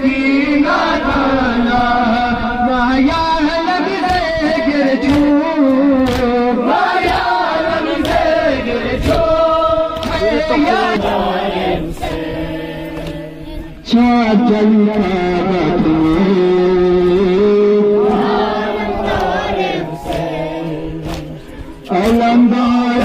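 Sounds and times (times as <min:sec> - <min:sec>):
sharp rhythmic strikes: 0:03.1 - 0:08.4
group of voices chanting: 0:06.0 - 0:13.9, 0:17.0 - 0:23.0.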